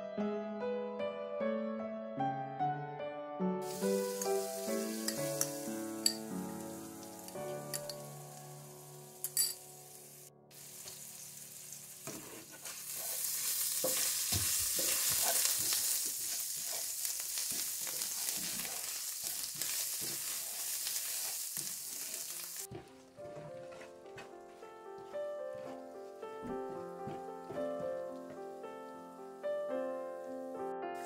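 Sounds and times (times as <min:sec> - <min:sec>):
food sizzling in a frying pan: 0:03.6 - 0:22.8
spatula scraping a pan: 0:11.8 - 0:23.9.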